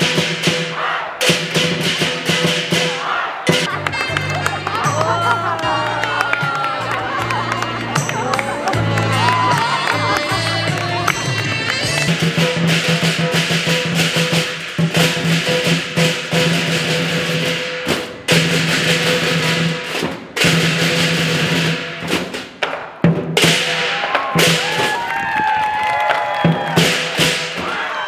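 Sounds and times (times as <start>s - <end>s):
large drum beating fast rhythm: 0.0s - 22.4s.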